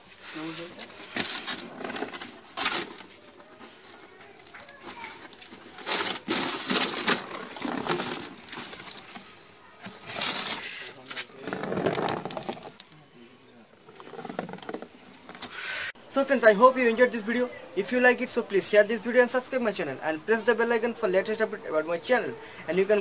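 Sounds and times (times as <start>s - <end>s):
cardboard rustling and scraping: 0.0s - 12.8s, 13.8s - 15.6s.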